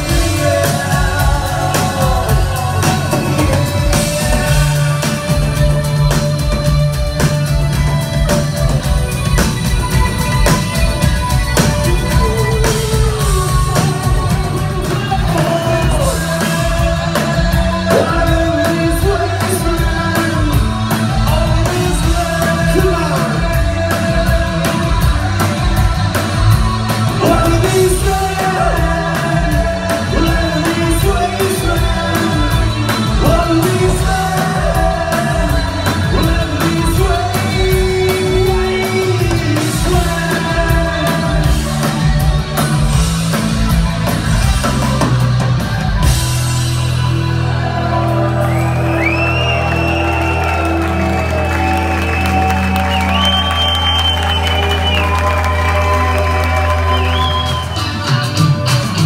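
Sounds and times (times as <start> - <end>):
man singing lead vocal: 0.0 - 7.8, 11.2 - 43.3
rock band playing live: 0.0 - 59.0.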